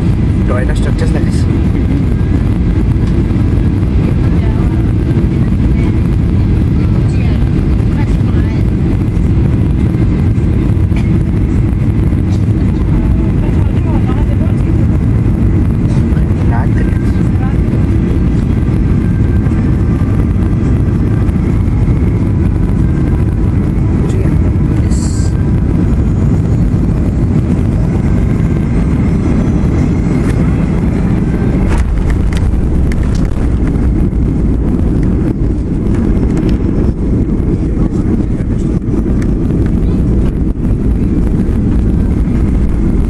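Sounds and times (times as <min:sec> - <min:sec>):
airliner cabin engine rumble: 0:00.0 - 0:43.0.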